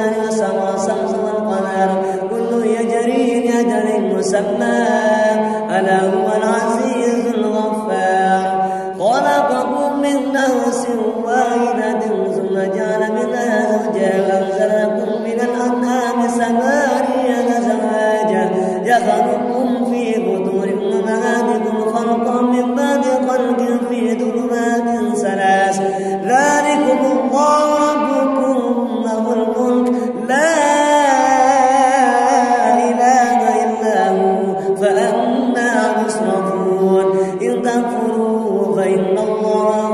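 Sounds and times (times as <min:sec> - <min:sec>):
man reciting melodically: 0:00.0 - 0:39.9
man breathing: 0:08.6 - 0:09.0, 0:25.8 - 0:26.2.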